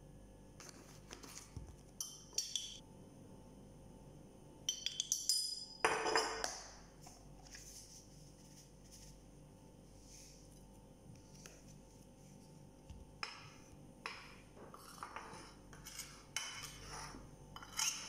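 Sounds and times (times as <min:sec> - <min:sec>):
spoon clinking on ceramic plate: 0:02.0 - 0:02.8, 0:04.7 - 0:06.6
spice containers clinking: 0:04.7 - 0:06.8.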